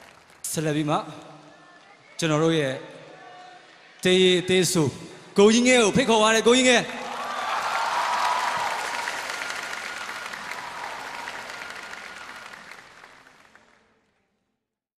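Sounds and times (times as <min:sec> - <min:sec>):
audience applauding: 0:00.0 - 0:02.4, 0:06.9 - 0:14.2.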